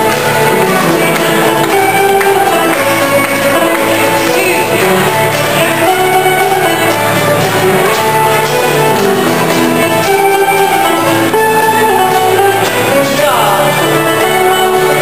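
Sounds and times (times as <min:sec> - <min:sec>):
fiddles playing dance tune: 0:00.0 - 0:15.0
strummed guitar: 0:00.0 - 0:15.0.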